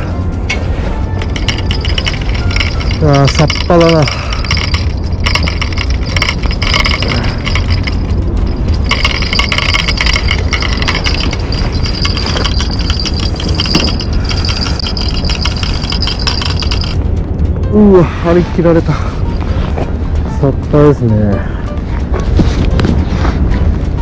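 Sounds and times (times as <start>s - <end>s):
steady low rumble: 0.0s - 24.0s
fishing reel clicking: 1.2s - 17.0s.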